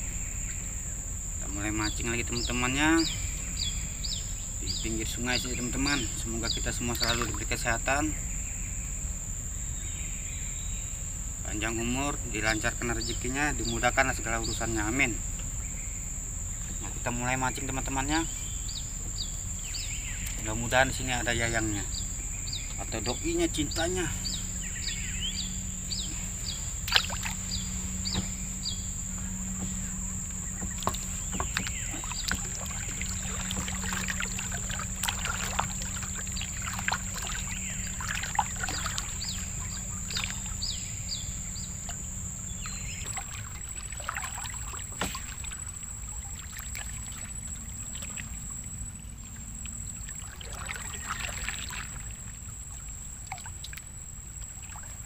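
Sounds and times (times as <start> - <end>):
steady high-pitched whine: 0.0 - 55.0
paddle splashing in water: 4.8 - 7.6, 22.2 - 55.0.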